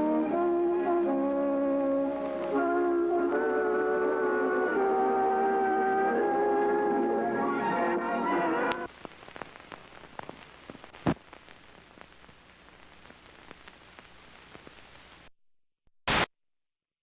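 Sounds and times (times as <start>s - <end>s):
film soundtrack hiss and crackle: 0.0s - 15.3s, 16.1s - 16.3s
clicks and pops: 8.8s - 14.9s, 16.1s - 16.3s
loud burst of static: 8.9s - 15.3s, 16.1s - 16.3s.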